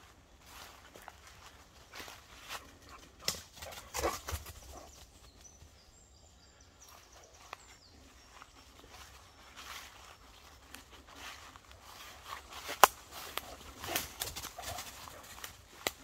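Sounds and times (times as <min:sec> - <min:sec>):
footsteps crunching dry leaves: 0:00.0 - 0:03.8, 0:06.8 - 0:16.0.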